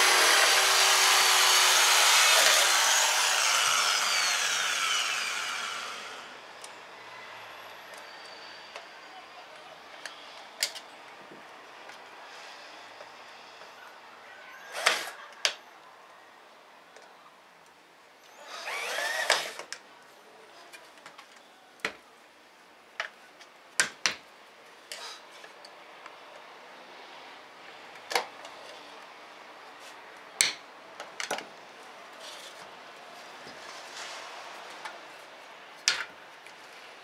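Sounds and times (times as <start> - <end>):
electric drill running: 0.0 - 6.3, 14.7 - 15.2, 18.4 - 19.6.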